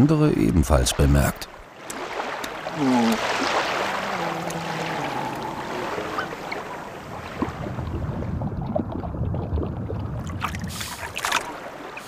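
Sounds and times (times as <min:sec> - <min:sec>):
sea water sloshing and splashing: 0:00.9 - 0:12.0
muffled underwater rumble: 0:02.6 - 0:11.1.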